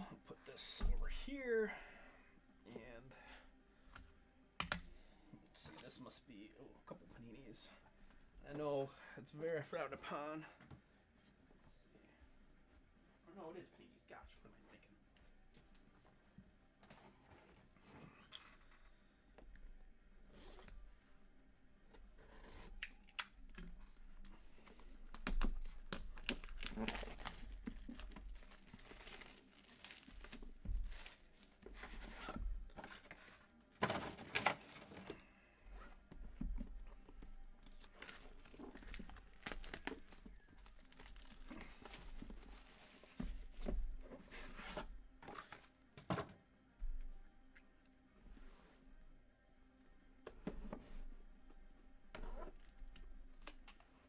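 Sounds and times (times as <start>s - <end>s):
plastic shrink wrap tearing: 25.2s - 31.3s, 37.8s - 42.8s.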